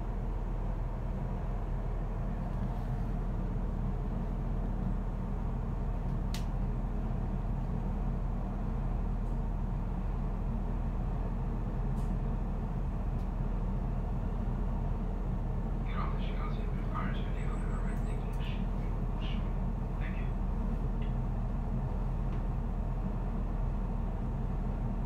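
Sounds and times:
train rumbling along track: 0.0s - 25.0s.

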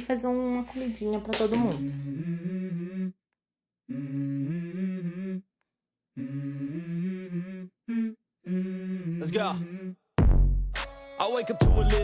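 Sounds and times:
hummed vocal music: 1.5s - 3.2s, 3.9s - 10.2s, 10.8s - 12.0s.

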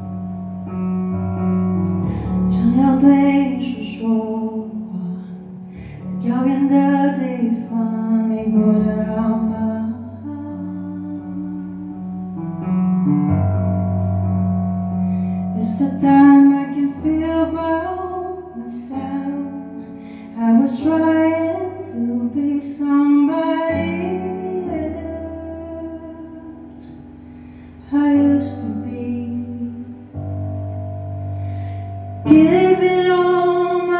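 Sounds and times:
keyboard chords: 0.0s - 7.8s, 8.4s - 33.9s
woman singing: 2.4s - 12.4s, 15.6s - 27.0s, 27.9s - 30.1s, 32.2s - 33.9s.

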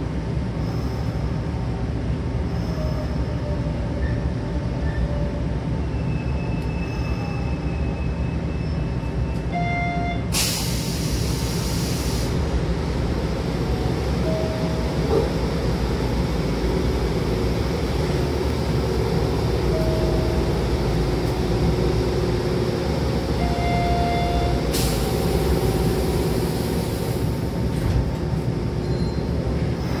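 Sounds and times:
train equipment humming: 8.8s - 30.0s
hiss of air: 10.4s - 12.4s, 24.7s - 27.4s
train doors thumping shut: 14.8s - 15.6s.

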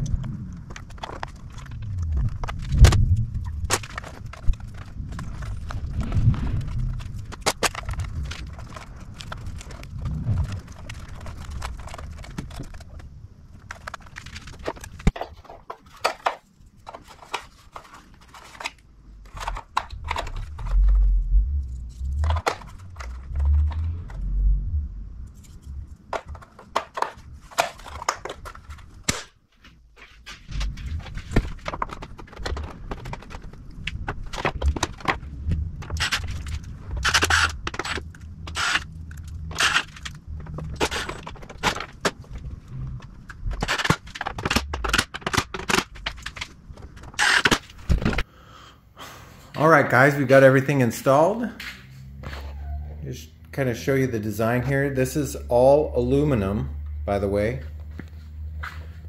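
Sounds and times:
low rumble: 0.0s - 13.4s, 19.1s - 26.2s, 30.4s - 43.7s
hand tools clicking and scraping plastic: 0.0s - 21.0s, 21.9s - 24.2s, 25.3s - 48.3s.

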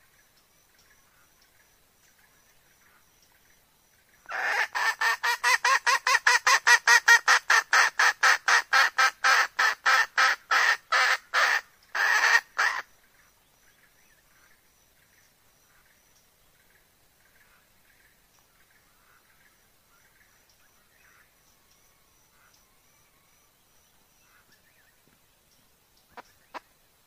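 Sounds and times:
hen clucking: 4.3s - 12.8s.

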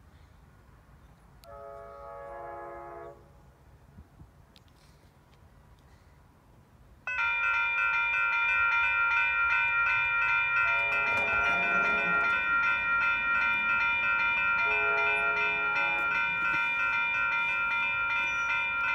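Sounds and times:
lower bell tones: 7.1s - 18.9s
railroad crossing bell ringing: 7.1s - 18.9s.

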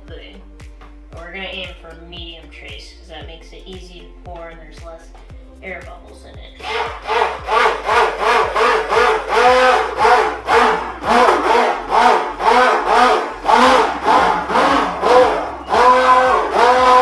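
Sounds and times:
stick blender motor: 6.6s - 17.0s.

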